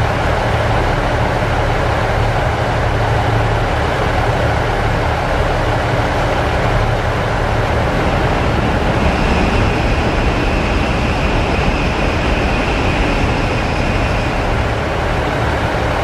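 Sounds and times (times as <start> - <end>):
faint high whine: 4.7 - 16.0.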